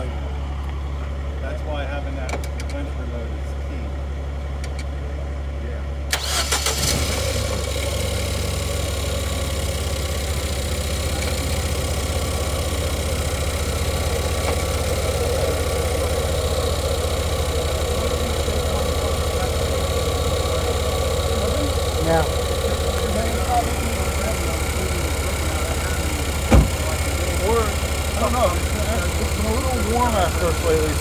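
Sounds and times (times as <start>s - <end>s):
engine cooling fan rushing air: 0.0s - 31.0s
steady low hum: 9.1s - 31.0s.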